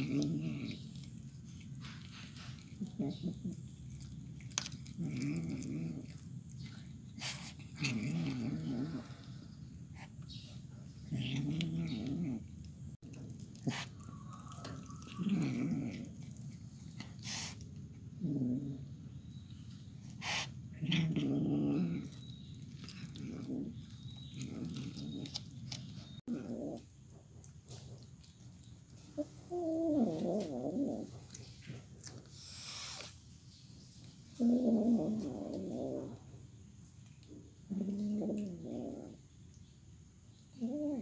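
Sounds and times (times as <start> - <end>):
cat growling: 0.0 - 10.2, 10.9 - 19.2, 20.1 - 27.0, 29.2 - 31.4, 34.4 - 36.4, 37.7 - 39.3, 40.5 - 41.0.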